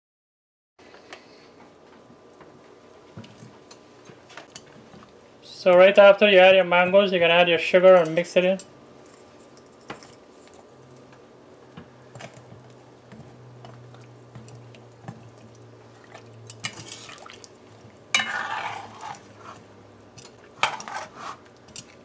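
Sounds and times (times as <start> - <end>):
spoon stirring in a pot: 12.2 - 22.0
water sloshing: 14.4 - 19.5.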